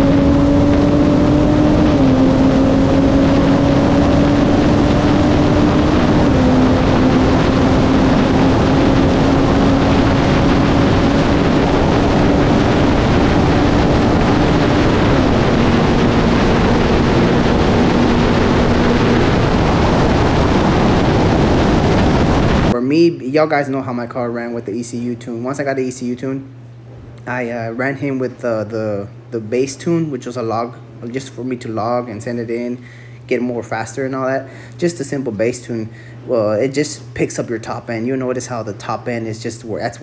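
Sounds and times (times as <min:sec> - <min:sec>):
car engine accelerating hard: 0:00.0 - 0:22.8
heavy wind rush: 0:00.0 - 0:22.8.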